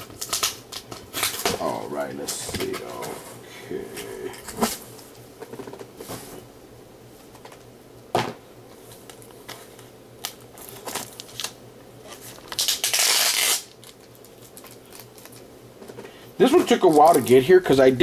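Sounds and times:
packaging ripping: 0:00.0 - 0:01.6, 0:10.2 - 0:15.4
packaging rustling and clicking: 0:08.9 - 0:17.4.

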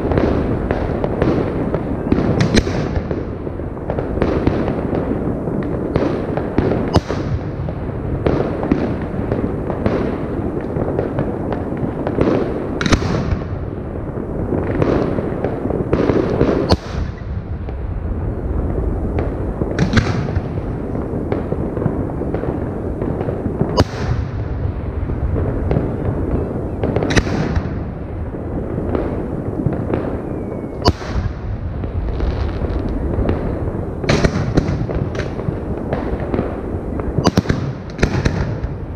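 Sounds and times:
low din of fireworks: 0:00.0 - 0:38.9
firework shells bursting: 0:25.6 - 0:28.0, 0:29.8 - 0:38.9.

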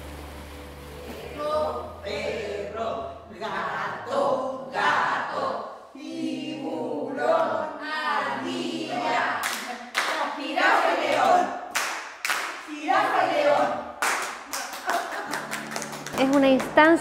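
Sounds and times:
women singing together: 0:01.1 - 0:11.6, 0:12.6 - 0:14.0
hand clapping: 0:09.4 - 0:10.3, 0:11.2 - 0:12.6, 0:14.0 - 0:17.0.

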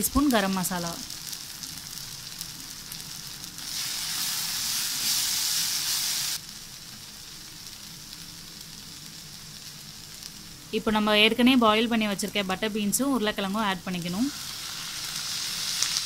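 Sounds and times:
masala sizzling in pan: 0:00.0 - 0:16.0
hiss of stirring in pan: 0:01.0 - 0:10.7, 0:14.3 - 0:16.0.

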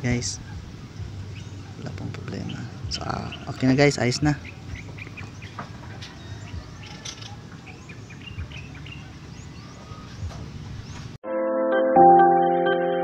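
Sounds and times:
birds chirping: 0:00.0 - 0:11.2
cooling fan whirring: 0:00.0 - 0:11.2
piano music: 0:11.2 - 0:13.0.

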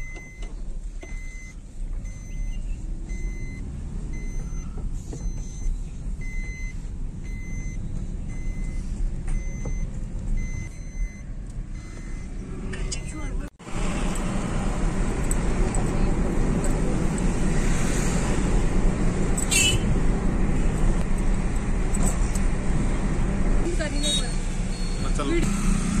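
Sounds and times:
dashboard warning chime beeping: 0:00.0 - 0:13.5, 0:23.7 - 0:25.9
car engine and road rumble: 0:00.0 - 0:26.0.

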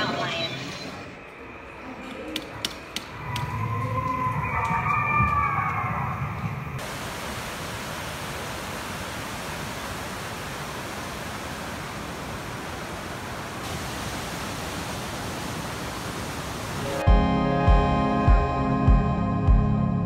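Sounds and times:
waterfall roar: 0:06.8 - 0:17.0.

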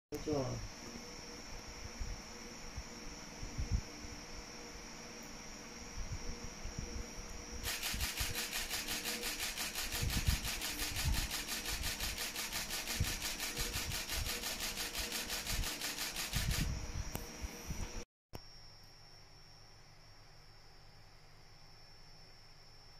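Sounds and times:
crickets trilling: 0:00.1 - 0:22.9
camera shutter burst clicks: 0:07.6 - 0:16.7.

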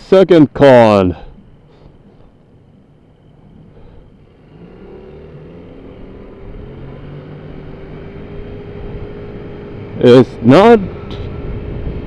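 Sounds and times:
scooter engine accelerating: 0:03.1 - 0:12.0
rushing wind noise: 0:07.7 - 0:12.0.

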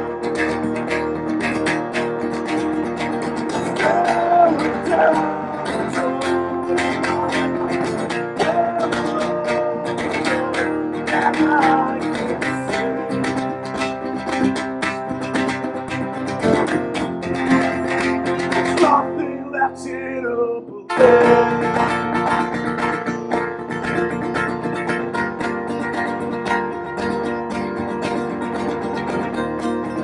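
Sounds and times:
acoustic band with strummed guitars: 0:00.0 - 0:30.0.

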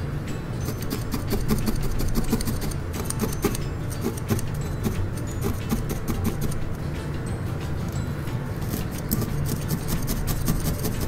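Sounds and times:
felting needle stabbing wool: 0:08.6 - 0:11.0.

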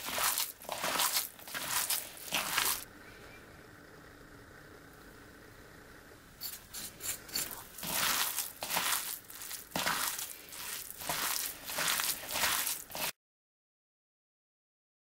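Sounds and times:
hand kneading wet filling: 0:00.0 - 0:02.9, 0:06.8 - 0:13.1.

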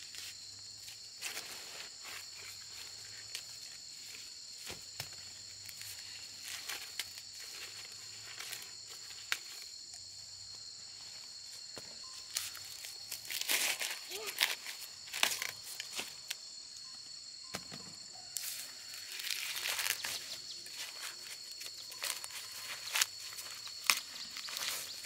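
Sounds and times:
insects chirring: 0:00.0 - 0:25.0
corn husks rustling: 0:01.2 - 0:09.8, 0:12.2 - 0:16.4, 0:18.4 - 0:25.0
dry corn stalks snapping: 0:13.2 - 0:16.4, 0:19.1 - 0:21.2, 0:21.9 - 0:24.9.

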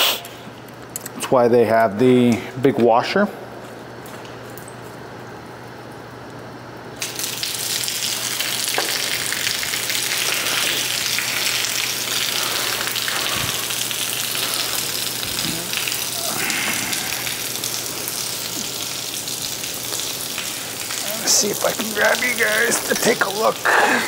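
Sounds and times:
drain water spraying: 0:07.0 - 0:24.0.

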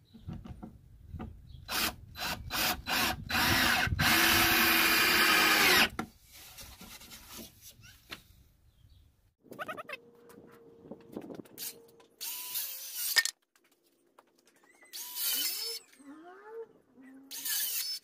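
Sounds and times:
power drill driving screw into wood: 0:01.7 - 0:06.0, 0:12.2 - 0:13.3, 0:14.9 - 0:15.8, 0:17.3 - 0:18.0.

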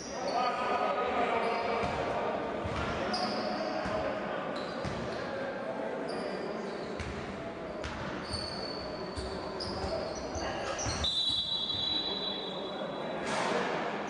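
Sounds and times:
sneakers squeaking on floor: 0:01.4 - 0:05.4, 0:06.1 - 0:12.7.

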